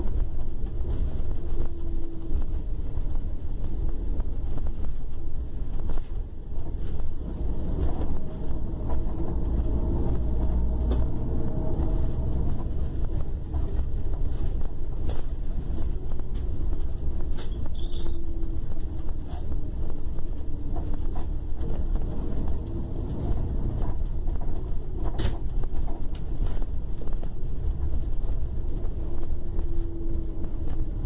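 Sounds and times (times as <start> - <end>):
bus engine rumble: 0.0 - 31.0.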